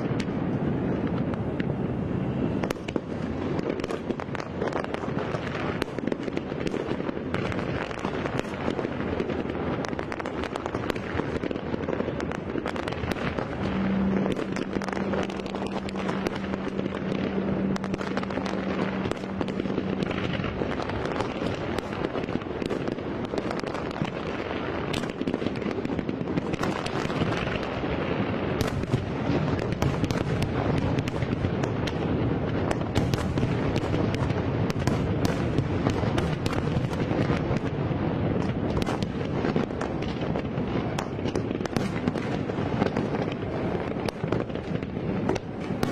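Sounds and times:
fireworks bangs and crackles: 0:00.0 - 0:45.9
steady low tone: 0:12.0 - 0:22.6.

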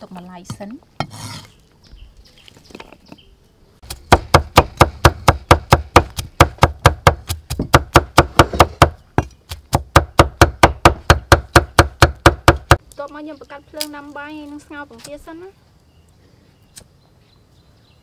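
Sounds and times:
cleaver chopping on wooden block: 0:03.9 - 0:12.8.

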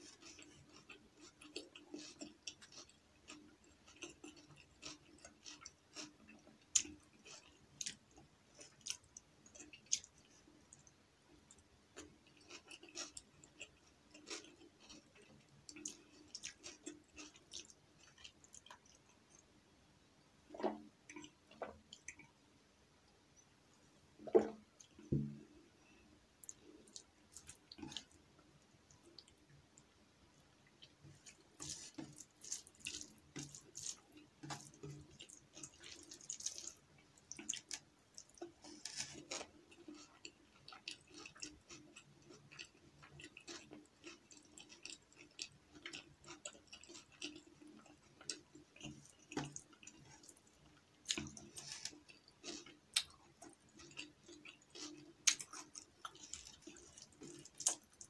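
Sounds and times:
wet chewing and mouth clicks: 0:00.0 - 0:10.9, 0:11.5 - 0:19.5, 0:24.2 - 0:28.2, 0:30.6 - 0:58.0
fingers squishing rice: 0:31.2 - 0:40.0.

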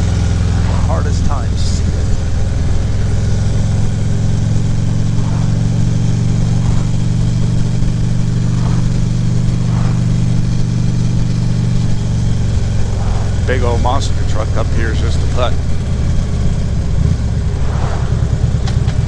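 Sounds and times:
motorcycle engine cruising: 0:00.0 - 0:19.0
wind and road noise: 0:00.0 - 0:19.0.

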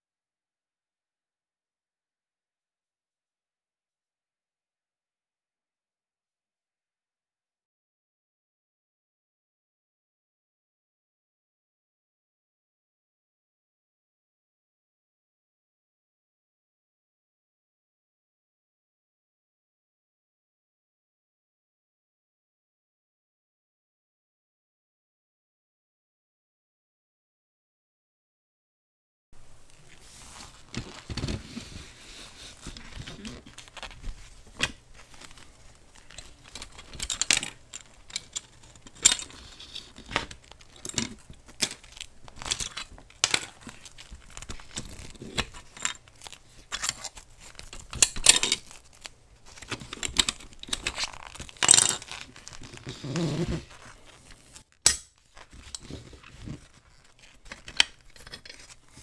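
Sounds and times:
fabric gloves rustling: 0:29.4 - 0:59.0.

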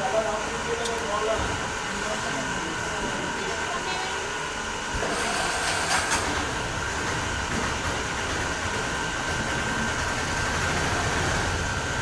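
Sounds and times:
steady rushing noise: 0:05.0 - 0:12.0.

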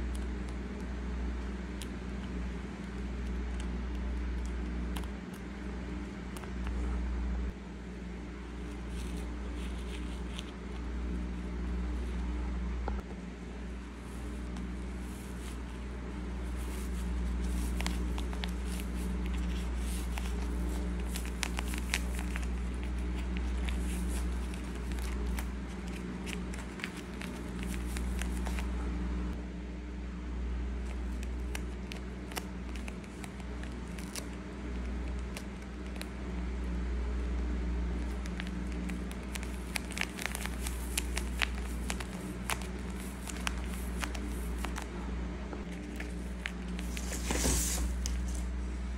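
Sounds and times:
steady low hum: 0:00.0 - 0:48.9
paper and tape crinkling: 0:08.6 - 0:12.2, 0:14.0 - 0:28.7, 0:30.8 - 0:36.2, 0:38.0 - 0:44.9, 0:45.6 - 0:48.6.

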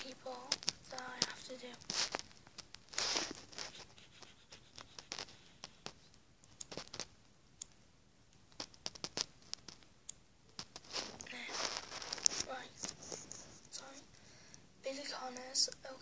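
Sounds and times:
fingers tapping a phone: 0:00.3 - 0:11.0.

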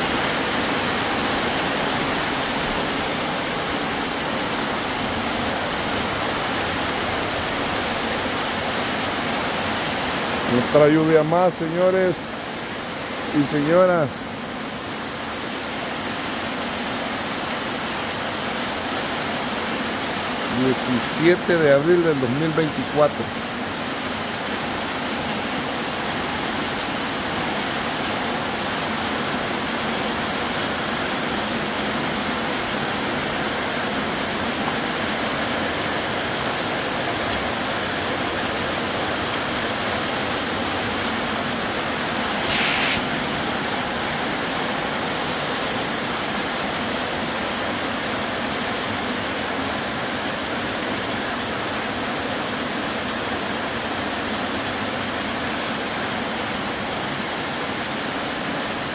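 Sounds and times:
heavy rain pouring: 0:00.0 - 0:58.9
brief high hiss: 0:42.3 - 0:43.3.

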